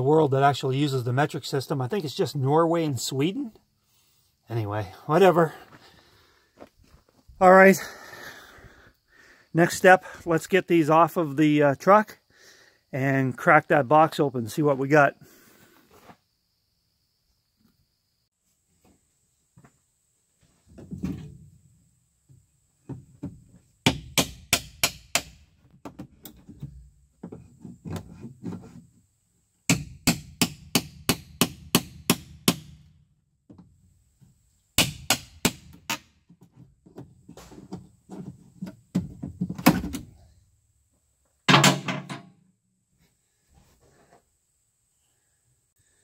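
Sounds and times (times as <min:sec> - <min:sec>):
hammer striking steel pry bar: 0:23.9 - 0:25.4.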